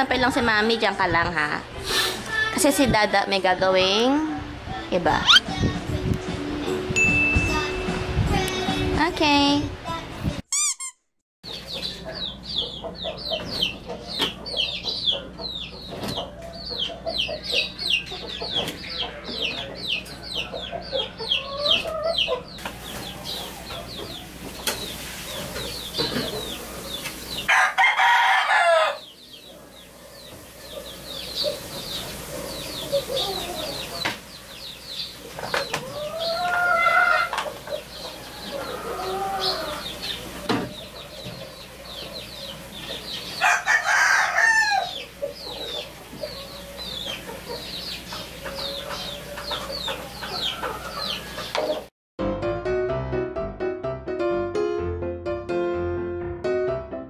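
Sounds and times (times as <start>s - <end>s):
short high chirps: 10.5s - 11.1s
rooster crowing: 27.5s - 29.1s, 38.1s - 40.0s, 43.4s - 45.0s.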